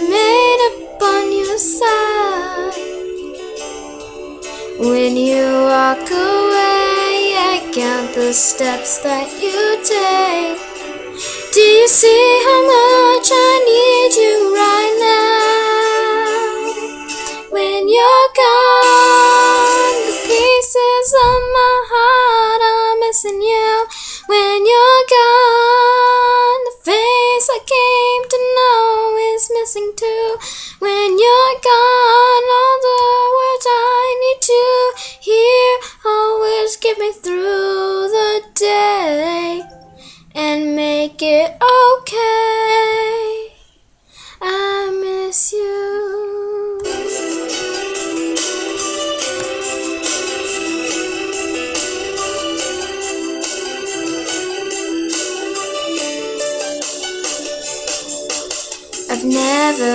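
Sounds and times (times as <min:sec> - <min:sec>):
girl singing: 0:00.0 - 0:03.2, 0:04.6 - 0:47.5, 0:59.0 - 0:59.9.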